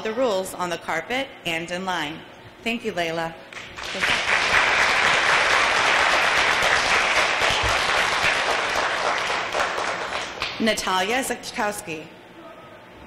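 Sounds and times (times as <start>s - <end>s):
audience applauding: 3.6s - 10.6s.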